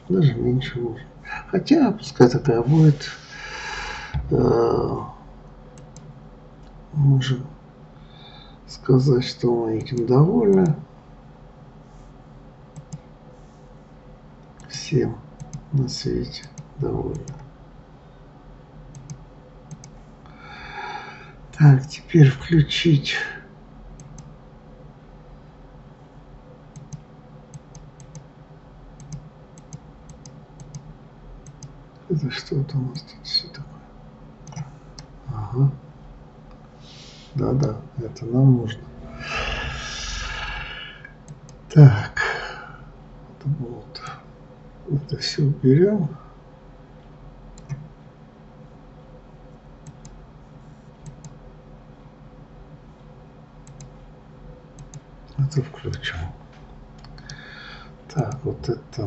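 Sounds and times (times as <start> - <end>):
faint low hum: 0.0 - 59.0
keyboard and mouse clicks: 5.8 - 6.8, 12.8 - 13.1, 15.4 - 15.8, 16.4 - 17.5, 18.9 - 20.0, 24.0 - 24.3, 26.7 - 28.3, 29.0 - 31.8, 34.4 - 35.1, 47.6 - 47.8, 49.8 - 50.2, 51.0 - 51.4, 53.6 - 54.0, 54.8 - 55.0.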